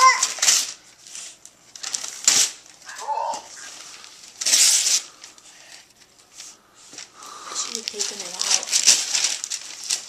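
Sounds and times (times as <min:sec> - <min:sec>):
child vocal sound: 0:00.0 - 0:00.4, 0:02.9 - 0:03.7
wrapping paper rustling and tearing: 0:00.0 - 0:10.0.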